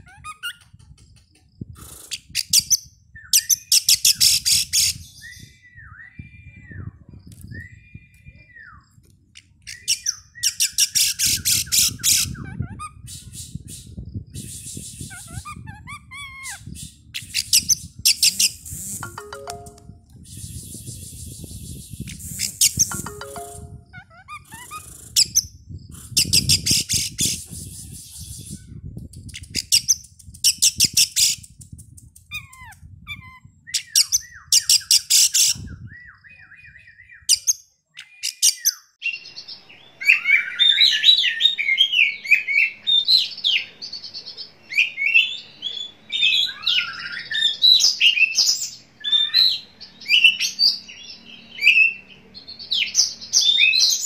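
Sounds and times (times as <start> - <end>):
bird singing and chattering: 21.4 - 25.5.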